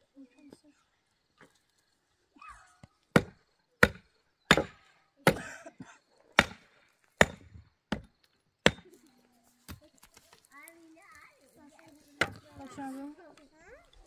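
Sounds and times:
metal tool striking stony ground: 0:03.1 - 0:05.5, 0:06.4 - 0:09.0, 0:12.2 - 0:12.8.

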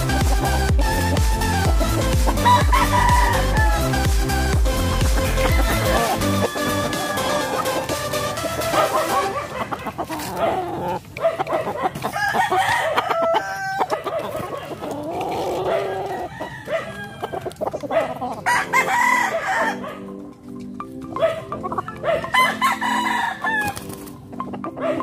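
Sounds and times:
chickens clucking and calling: 0:00.0 - 0:25.0
rooster crowing: 0:02.3 - 0:04.0, 0:05.3 - 0:07.9, 0:11.8 - 0:14.2, 0:15.3 - 0:17.5, 0:18.4 - 0:20.0, 0:21.9 - 0:23.8.

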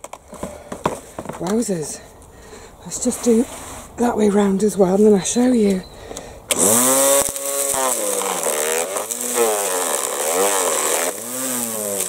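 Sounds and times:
string trimmer shredding leaves: 0:06.5 - 0:12.0.

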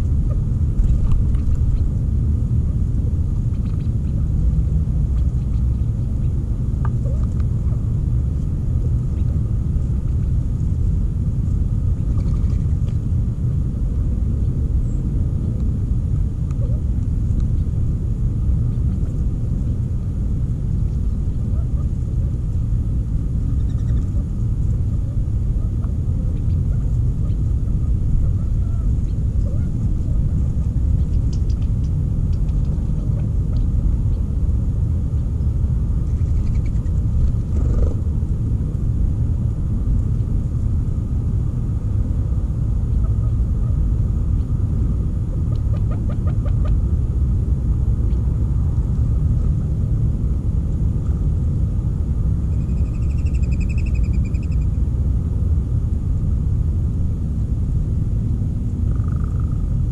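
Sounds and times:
low rumble: 0:00.0 - 0:59.9
quail clucking: 0:23.6 - 0:24.2, 0:45.5 - 0:46.8.

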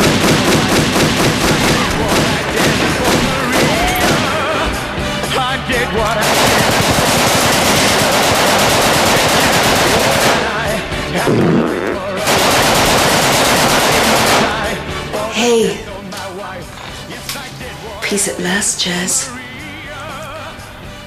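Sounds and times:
automatic gunfire bursts: 0:00.0 - 0:04.6, 0:06.1 - 0:10.8, 0:12.2 - 0:14.8.

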